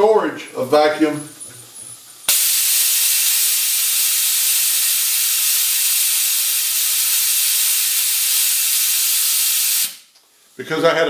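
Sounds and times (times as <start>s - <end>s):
compressed air hissing: 2.2s - 10.6s.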